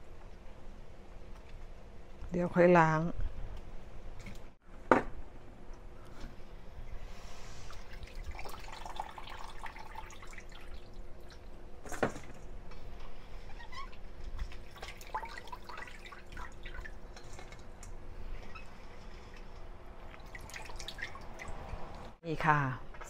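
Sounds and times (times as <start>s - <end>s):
small splashes and drips: 6.8s - 11.6s, 13.7s - 22.2s.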